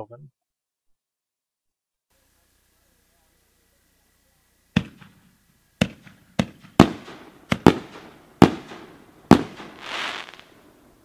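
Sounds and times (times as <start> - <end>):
fireworks booming with echo: 4.6 - 11.0.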